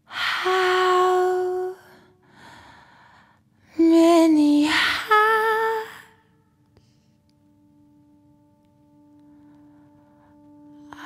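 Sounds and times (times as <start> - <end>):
woman singing breathy notes: 0.0 - 6.3
quiet breaths: 1.7 - 3.8, 6.7 - 7.6, 9.2 - 11.0.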